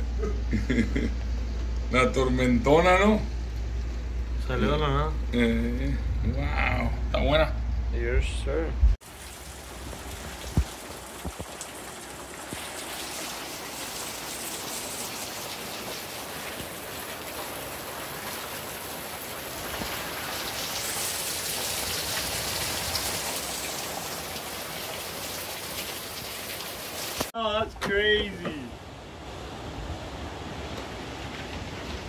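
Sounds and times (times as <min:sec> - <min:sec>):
heavy rain pouring: 0:09.0 - 0:32.0.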